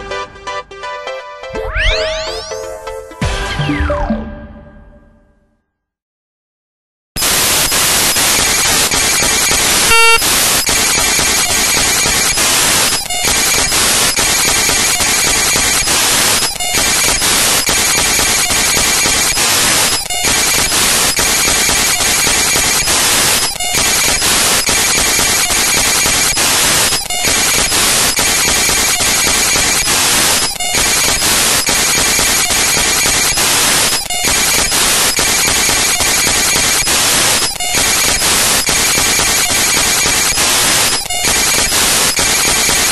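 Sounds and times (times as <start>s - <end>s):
short beep: 9.2s - 11.2s.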